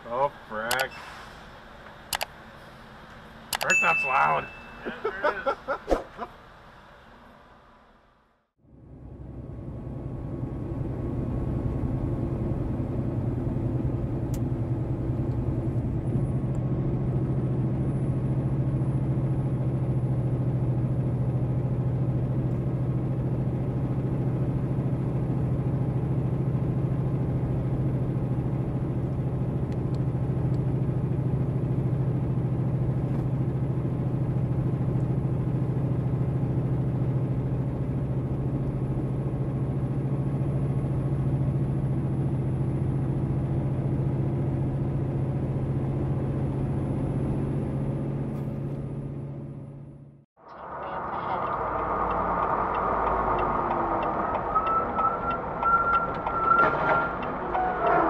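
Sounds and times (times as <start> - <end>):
road and tyre rumble: 0.0 - 58.0
truck diesel engine droning: 0.0 - 58.0.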